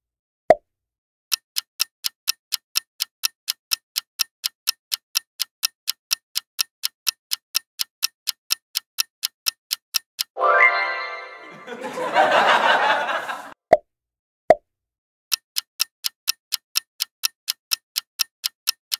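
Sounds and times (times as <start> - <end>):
clock ticking: 1.3 - 10.4, 15.3 - 18.9.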